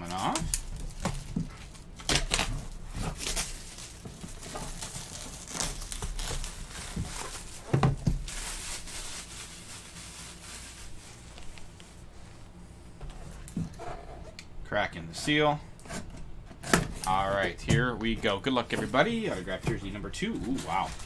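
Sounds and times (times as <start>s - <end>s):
plastic wrap tearing and crinkling: 0.0s - 11.8s, 20.5s - 21.0s.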